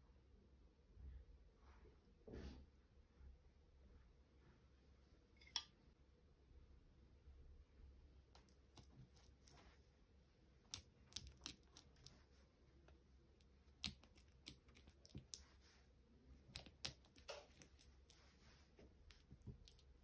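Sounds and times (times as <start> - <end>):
fingertips tapping bread dough: 10.6 - 12.2, 12.8 - 15.8, 16.4 - 20.0.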